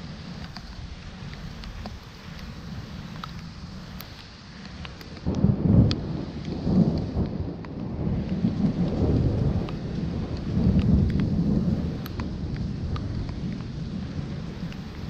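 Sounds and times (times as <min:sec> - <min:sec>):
rain falling: 0:00.0 - 0:15.0
thunder rumbling: 0:04.8 - 0:15.0.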